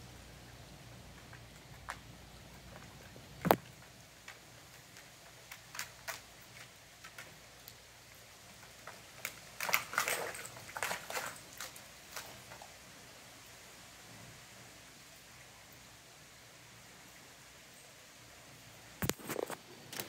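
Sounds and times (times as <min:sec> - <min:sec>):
dog claws clicking on concrete: 0:01.2 - 0:07.8, 0:08.6 - 0:12.7.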